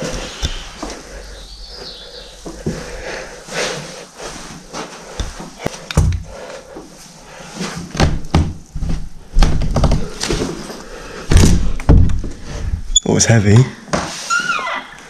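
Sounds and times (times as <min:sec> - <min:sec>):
knocks and thuds of wooden door: 0:08.0 - 0:08.6, 0:09.4 - 0:10.0, 0:11.3 - 0:12.3.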